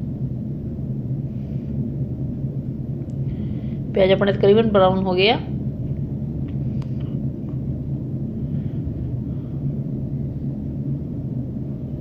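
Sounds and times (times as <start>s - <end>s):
low kitchen hum: 0.0s - 12.0s.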